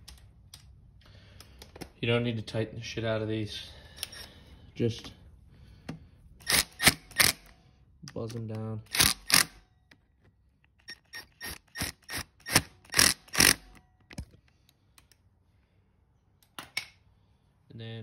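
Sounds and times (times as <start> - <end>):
cordless power driver bursts: 8.9 - 9.6, 10.8 - 13.8.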